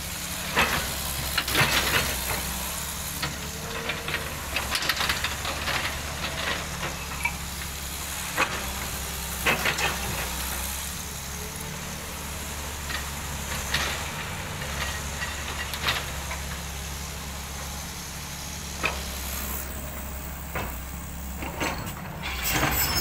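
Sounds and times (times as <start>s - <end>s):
diesel engine running: 0.0s - 23.0s
bucket scraping through gravel: 19.0s - 23.0s
crunches and clanks: 20.5s - 23.0s.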